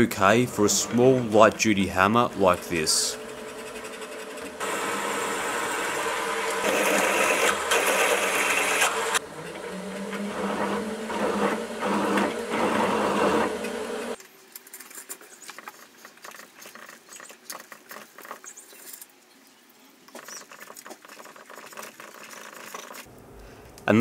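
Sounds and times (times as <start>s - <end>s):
milling machine cutting steel: 0.0s - 14.2s.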